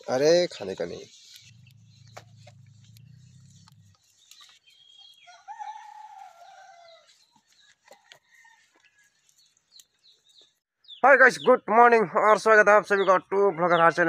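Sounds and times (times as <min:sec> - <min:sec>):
low hum: 0:01.3 - 0:04.1
rooster crowing: 0:05.2 - 0:07.1, 0:07.9 - 0:09.2.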